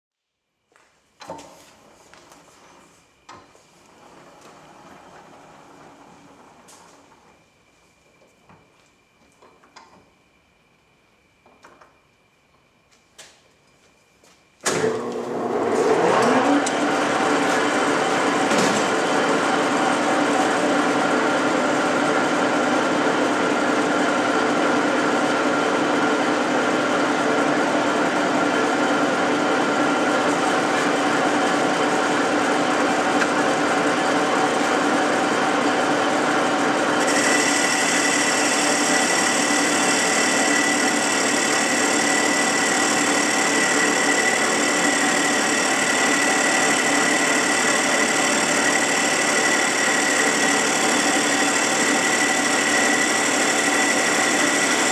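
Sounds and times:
metal lathe humming: 0:14.8 - 0:22.3, 0:27.9 - 0:54.9.

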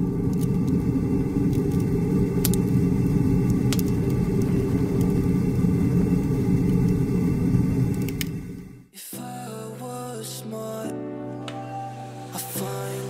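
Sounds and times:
heavy low rumble: 0:00.0 - 0:08.9.

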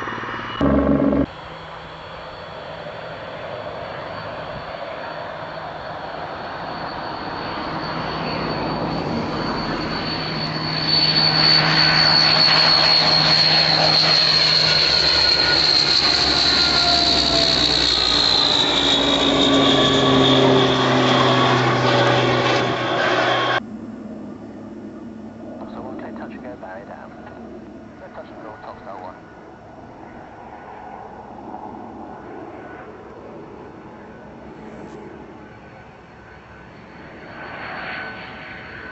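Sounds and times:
propeller drone: 0:00.0 - 0:38.9
turboprop engine high whine: 0:00.0 - 0:38.9.

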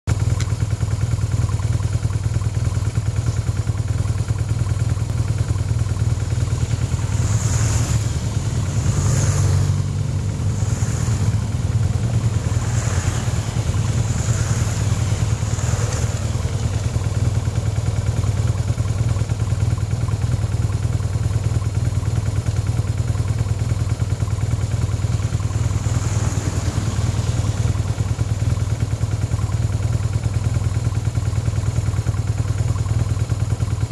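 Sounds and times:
low rumble: 0:04.8 - 0:20.0, 0:23.4 - 0:30.9
van passing: 0:05.1 - 0:19.0, 0:24.4 - 0:30.0
motorcycles riding past on gravel: 0:06.2 - 0:17.8, 0:24.8 - 0:29.2.

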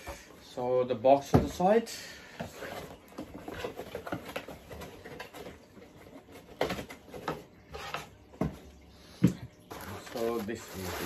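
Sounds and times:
cardboard packaging rustling: 0:02.4 - 0:08.6, 0:09.6 - 0:11.0.

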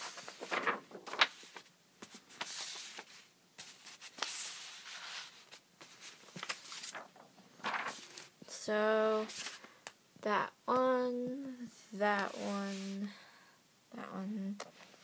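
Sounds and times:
paper rustling: 0:00.0 - 0:08.3, 0:09.1 - 0:09.7.

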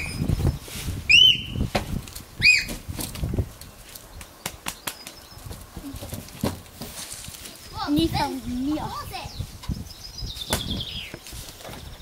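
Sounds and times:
high squeaky chirps: 0:00.0 - 0:01.7, 0:02.4 - 0:02.8.

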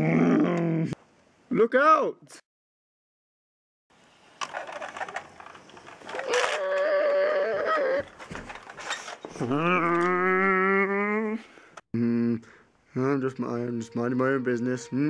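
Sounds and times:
plastic toy car clattering: 0:04.4 - 0:06.9
wailing cry: 0:06.2 - 0:08.1, 0:09.4 - 0:11.4.

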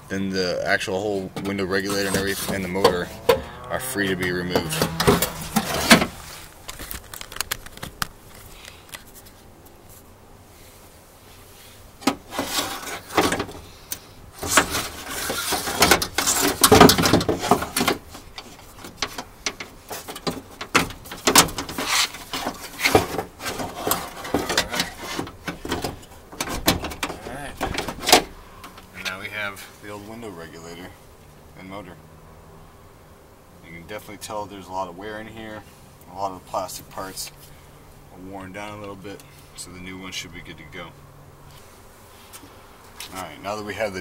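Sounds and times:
metal rails clanking and scraping: 0:04.5 - 0:06.4.

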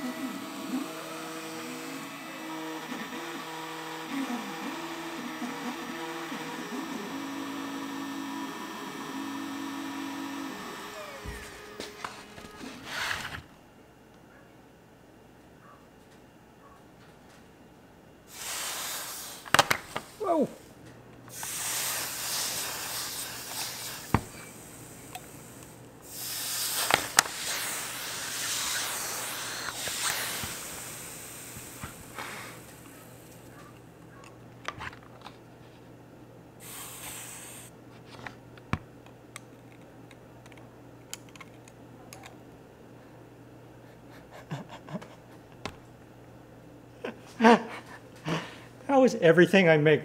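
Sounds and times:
hot iron hissing on ice: 0:00.0 - 0:13.0, 0:18.3 - 0:20.6, 0:21.3 - 0:33.5, 0:36.6 - 0:37.7.

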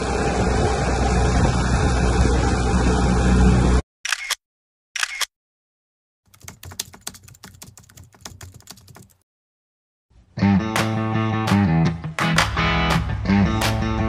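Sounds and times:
boat motor and wind noise: 0:00.0 - 0:03.8
short bursts of noise: 0:04.1 - 0:04.4, 0:05.0 - 0:05.3
keyboard typing clicks: 0:06.3 - 0:09.2.

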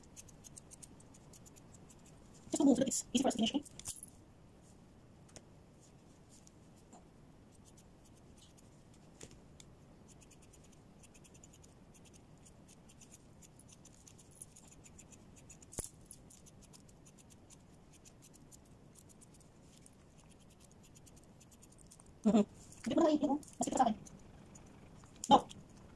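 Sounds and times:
scissors snipping fur: 0:00.0 - 0:02.2, 0:10.1 - 0:22.1.

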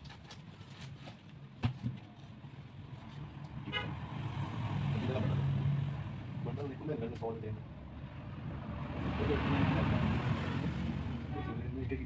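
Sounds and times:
vehicle engine hum: 0:02.4 - 0:12.0
car horn toot: 0:03.7 - 0:04.0.

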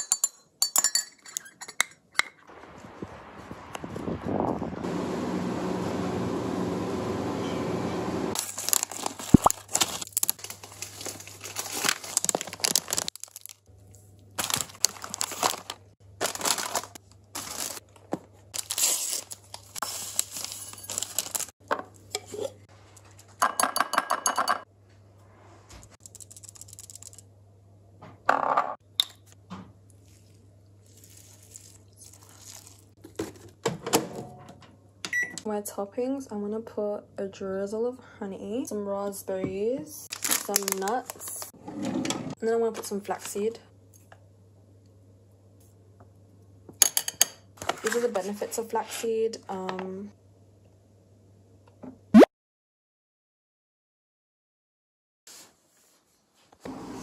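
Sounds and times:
food packaging crinkling and tearing: 0:08.4 - 0:21.6, 0:30.0 - 0:33.5, 0:40.1 - 0:41.5
oats poured into a bowl: 0:30.0 - 0:32.9.

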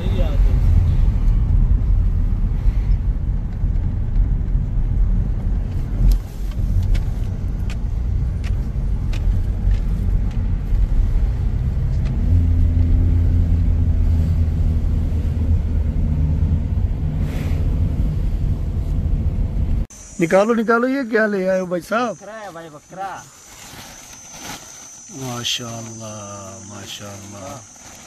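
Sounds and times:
car engine and tyre rumble: 0:00.0 - 0:20.1, 0:21.6 - 0:28.0
engine hum: 0:00.0 - 0:20.5.

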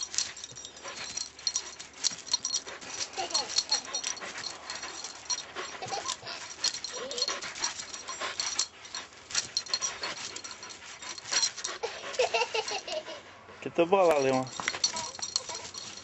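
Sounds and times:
dog panting: 0:00.0 - 0:16.0
small dog whining: 0:05.0 - 0:08.3.

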